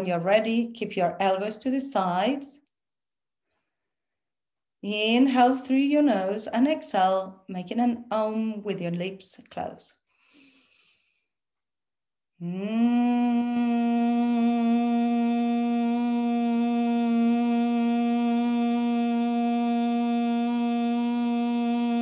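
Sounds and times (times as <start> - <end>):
woman humming: 12.4 - 22.0.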